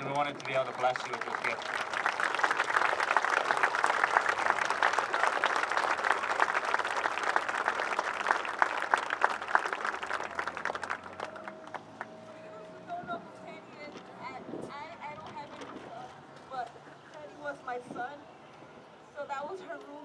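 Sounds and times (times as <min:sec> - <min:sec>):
crowd applauding: 0:00.0 - 0:12.2.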